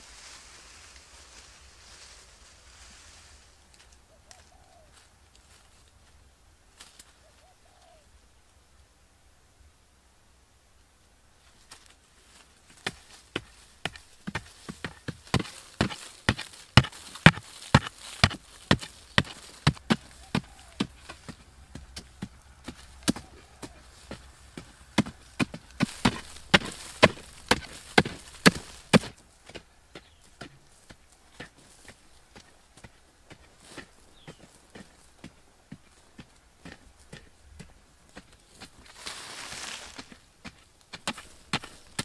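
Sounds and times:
hoes chopping into dry soil: 0:12.4 - 0:42.0.

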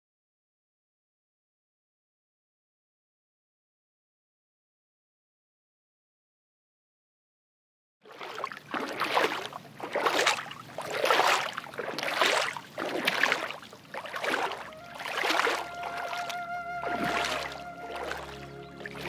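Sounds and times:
paddle splashing through water: 0:08.0 - 0:19.0.

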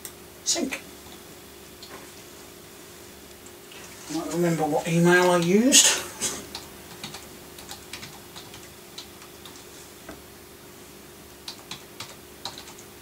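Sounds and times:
typing on a keyboard: 0:06.5 - 0:09.6, 0:11.4 - 0:12.9.

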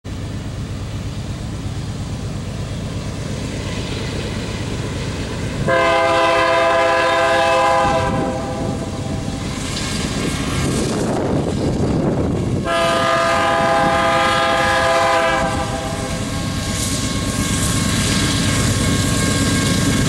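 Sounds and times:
train rumbling: 0:00.0 - 0:20.0
locomotive air horn blast: 0:05.6 - 0:09.3, 0:12.6 - 0:16.3.

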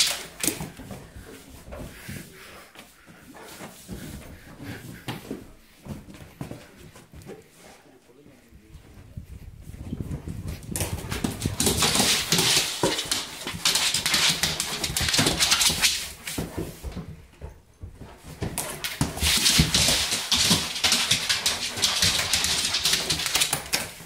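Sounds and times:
dog claws clicking on hard floor: 0:00.0 - 0:01.0, 0:10.1 - 0:16.7, 0:18.3 - 0:24.0.

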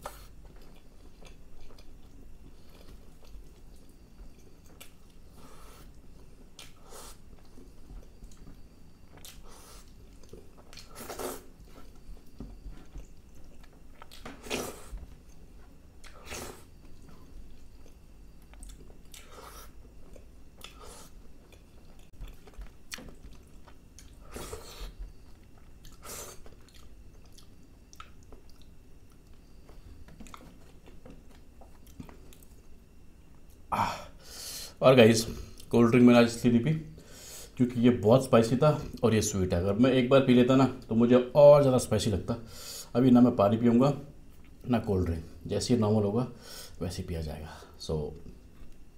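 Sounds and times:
person chewing food: 0:00.0 - 0:33.7.

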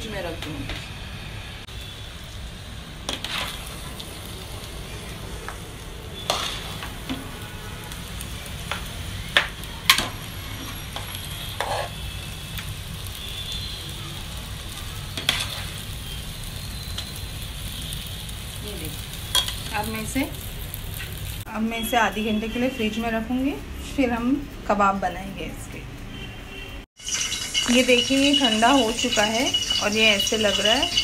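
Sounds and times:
metal spoon scraping metal pot: 0:11.6 - 0:12.0.

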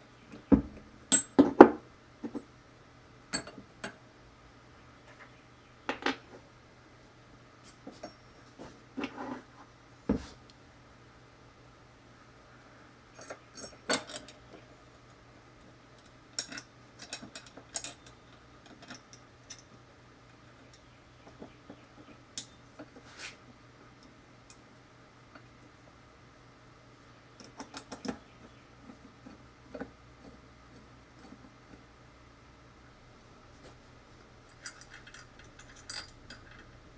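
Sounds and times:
metal parts clicking and clinking: 0:03.3 - 0:04.0, 0:13.2 - 0:14.5, 0:16.0 - 0:19.7, 0:34.5 - 0:36.8.

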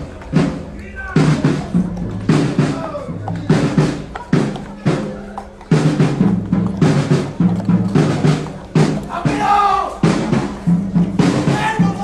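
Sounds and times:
drums beating marching rhythm: 0:00.0 - 0:12.0
voices crying out: 0:09.0 - 0:10.1, 0:11.4 - 0:12.0.

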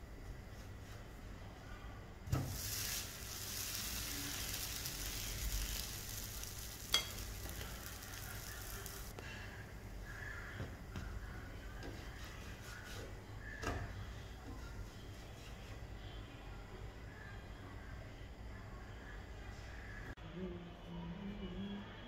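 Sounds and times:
pancake sizzling on a pan: 0:02.3 - 0:09.2.

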